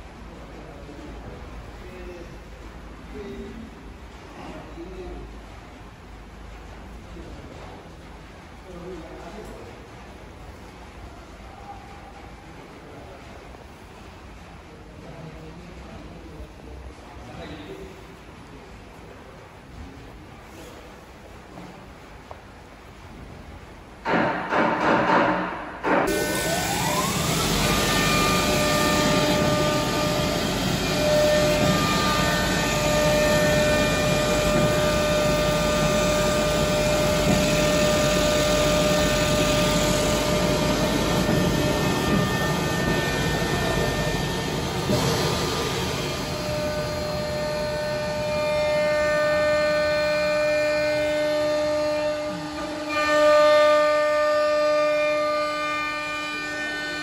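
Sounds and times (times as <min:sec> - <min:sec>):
low machine rumble: 0:26.1 - 0:52.9
cutting machine whine: 0:26.1 - 0:54.0.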